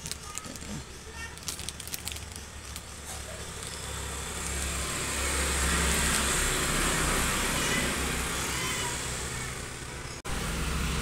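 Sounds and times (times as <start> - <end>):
plastic packaging crinkling: 0.0 - 4.6.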